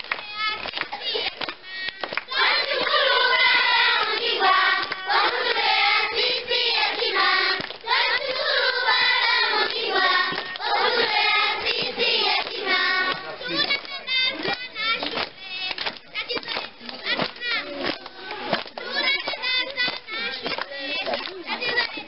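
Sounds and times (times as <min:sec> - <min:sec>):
hand clapping: 0:00.0 - 0:05.7, 0:06.9 - 0:08.3, 0:09.0 - 0:22.0
children singing together: 0:00.2 - 0:22.0.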